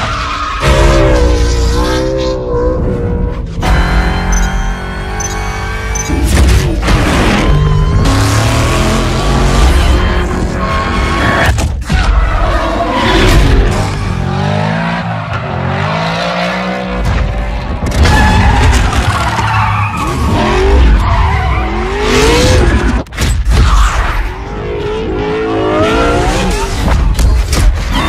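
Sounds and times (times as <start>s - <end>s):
tires squealing and skidding: 7.0s - 16.2s, 18.0s - 23.0s.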